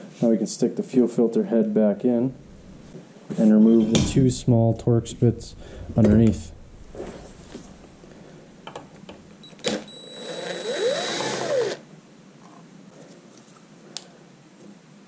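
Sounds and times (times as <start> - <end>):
cordless drill spinning: 9.5 - 11.8.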